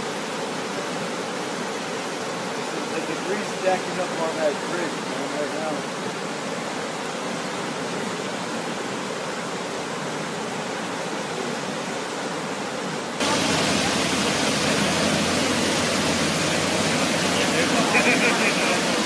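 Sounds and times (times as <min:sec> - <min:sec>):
floodwater rushing and churning: 0:00.0 - 0:19.0
water pouring over wall: 0:13.2 - 0:19.0.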